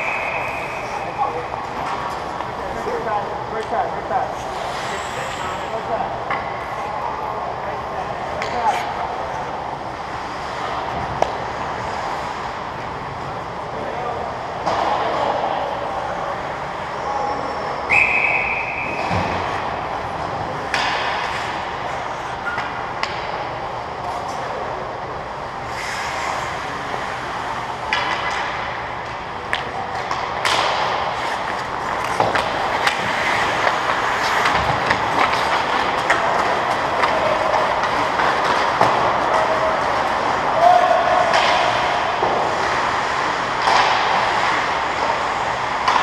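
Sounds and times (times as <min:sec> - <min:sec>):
hockey sticks and puck knocking: 0:20.6 - 0:21.7, 0:27.9 - 0:40.6, 0:41.2 - 0:46.0
skates scraping on ice: 0:30.5 - 0:40.5.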